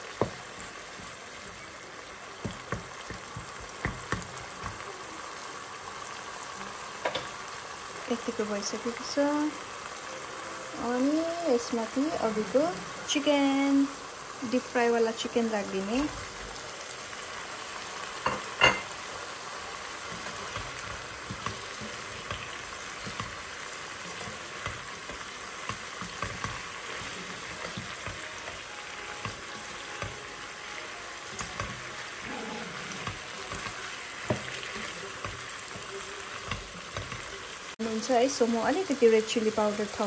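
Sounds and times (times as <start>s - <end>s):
curry sizzling in a pan: 0.0s - 40.0s
spatula scraping pan: 19.9s - 37.5s.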